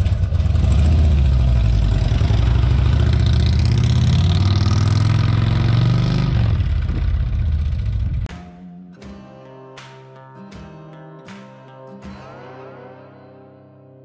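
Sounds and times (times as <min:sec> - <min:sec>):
motorcycle engine accelerating: 0:00.0 - 0:08.3.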